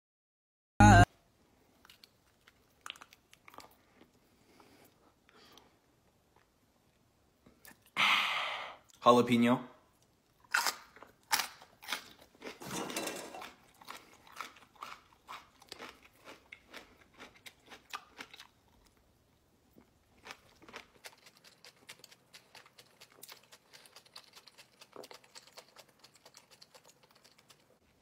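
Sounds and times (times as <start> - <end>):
pepper crunching when chewed: 1.8 - 4.2, 10.0 - 12.6, 13.4 - 19.0, 19.8 - 27.8.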